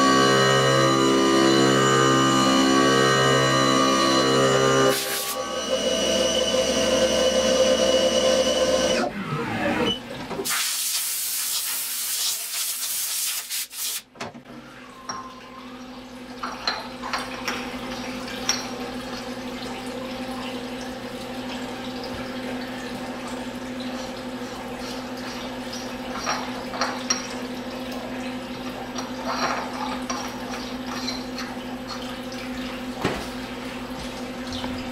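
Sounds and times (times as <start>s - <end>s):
spindle winding down: 0.0s - 9.9s
steady machine hum: 0.0s - 9.9s
mill cutting aluminum: 0.0s - 10.0s.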